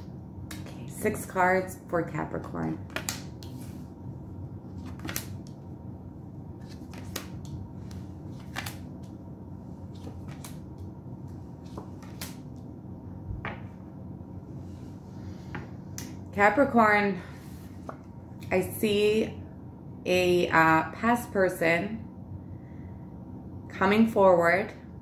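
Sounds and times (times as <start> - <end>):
steady low hum: 0.0 - 25.0
cards snapping and tapping on table: 2.9 - 3.5.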